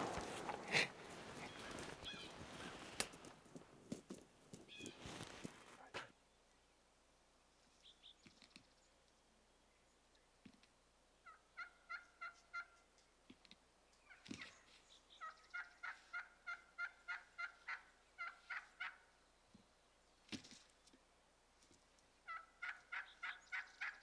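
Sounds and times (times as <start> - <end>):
turkey yelping: 0.1 - 2.8, 11.2 - 12.9, 15.2 - 19.1, 22.3 - 24.0
faint short turkey calls: 0.2 - 2.9, 11.2 - 13.0, 14.0 - 19.1, 22.2 - 24.0.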